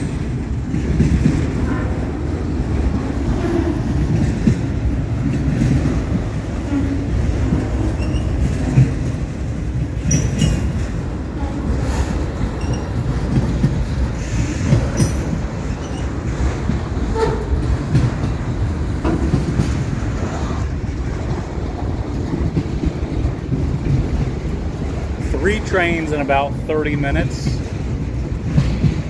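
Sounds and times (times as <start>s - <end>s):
clickety-clack over rail joints: 0.0s - 29.0s
steel wheels rumbling on rail: 0.0s - 29.0s
wheels squealing: 6.6s - 8.9s, 11.7s - 13.4s, 14.1s - 16.4s.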